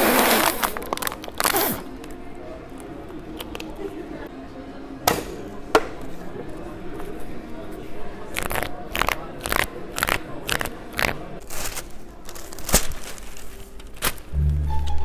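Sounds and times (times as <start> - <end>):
wrapper crinkling: 0.1 - 1.7, 11.4 - 14.4
newspaper rustling: 11.4 - 14.4
music: 13.3 - 15.0.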